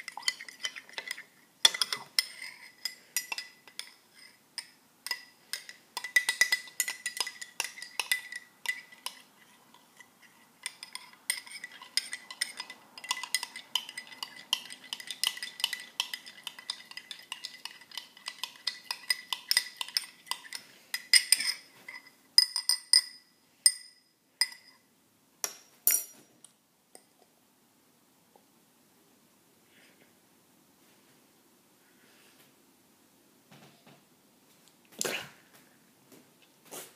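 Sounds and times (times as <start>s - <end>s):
spoon clinking against glass: 0.0s - 4.0s, 4.6s - 9.2s, 10.6s - 24.8s.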